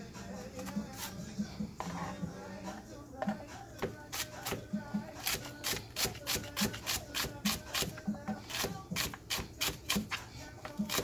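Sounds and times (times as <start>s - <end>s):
knife chopping celery on board: 3.8s - 11.0s.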